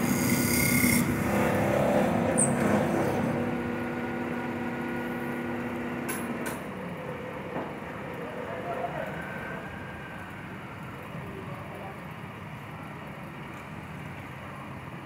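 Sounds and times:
lathe motor hum: 0.0s - 11.3s.

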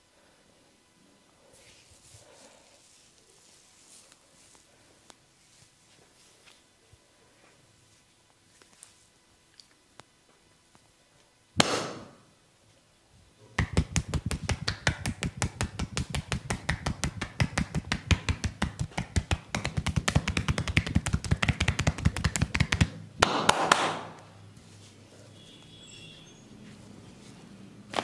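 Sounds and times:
percussive massage tapping: 13.6s - 24.2s.

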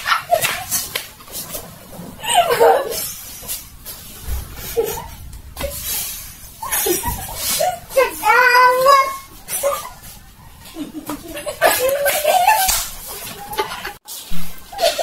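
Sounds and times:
people laughing: 2.2s - 3.1s, 6.6s - 7.9s, 9.5s - 14.0s.

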